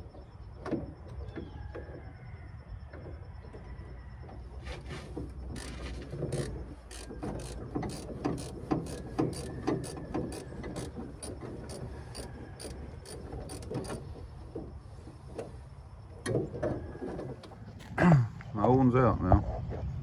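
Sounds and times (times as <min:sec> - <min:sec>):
hand ratchet clicking: 0:05.5 - 0:14.0.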